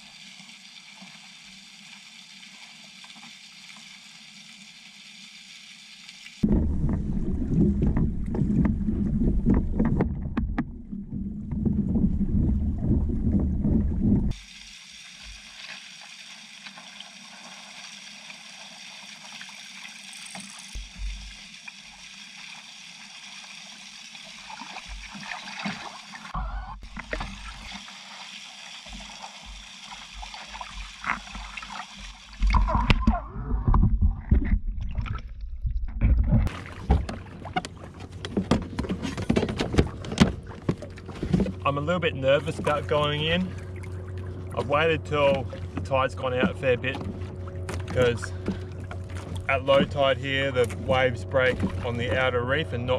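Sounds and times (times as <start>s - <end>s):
low knocks on hull: 6.4s - 14.3s
water sloshing against hull: 6.4s - 14.4s, 20.2s - 21.5s, 24.4s - 52.9s.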